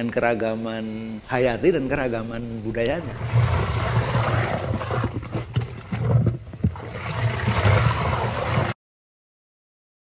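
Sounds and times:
wet cloth squelching and sloshing: 3.1s - 8.8s.

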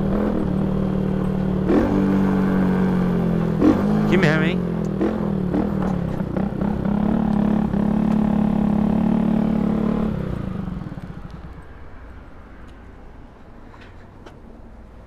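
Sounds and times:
motorcycle engine running: 0.0s - 11.6s.

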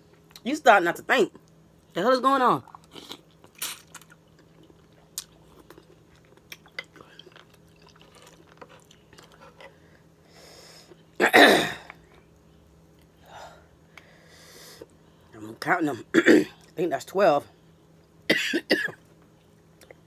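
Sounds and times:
person chewing: 2.6s - 9.8s.

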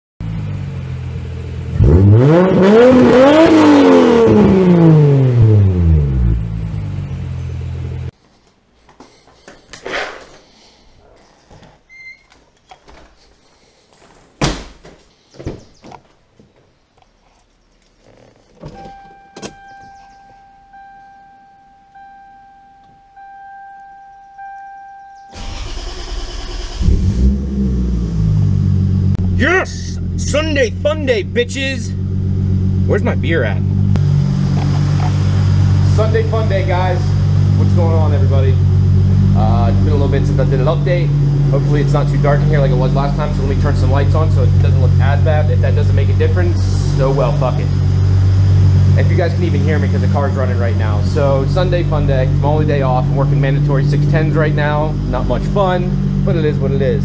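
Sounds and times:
car engine idling and revving: 0.2s - 8.2s, 18.0s - 57.0s
electronic chime: 18.8s - 25.4s
engine starter cranking: 25.2s - 27.5s.

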